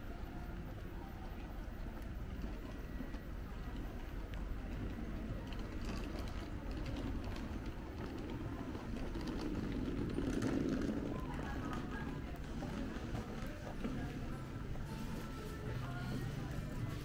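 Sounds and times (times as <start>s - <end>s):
low street rumble: 0.0s - 17.0s.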